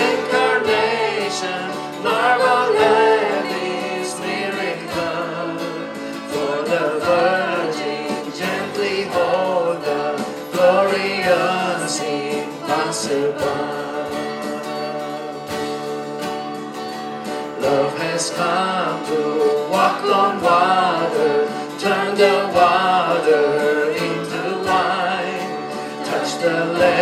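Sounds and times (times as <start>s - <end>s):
acoustic guitar: 0.0s - 27.0s
drums: 0.0s - 27.0s
keyboard: 0.0s - 27.0s
woman singing: 26.0s - 27.0s.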